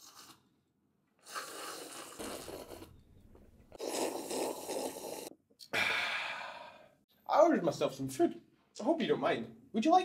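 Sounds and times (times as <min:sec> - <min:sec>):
man slurping tea: 0:00.0 - 0:00.5, 0:01.2 - 0:03.0, 0:03.7 - 0:06.8.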